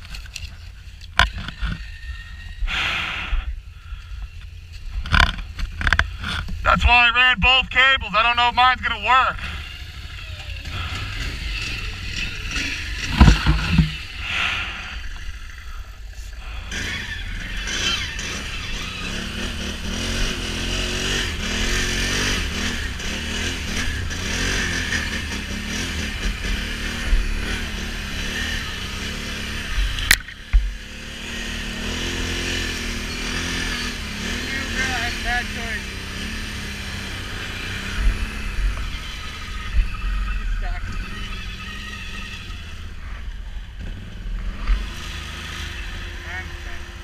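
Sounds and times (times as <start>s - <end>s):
atv engine revving: 0.0s - 47.0s
heavy thump: 13.1s - 14.0s.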